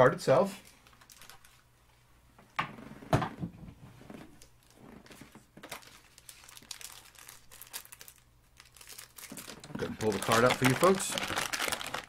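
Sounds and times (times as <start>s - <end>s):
paper and cardboard crinkling: 4.3s - 12.0s.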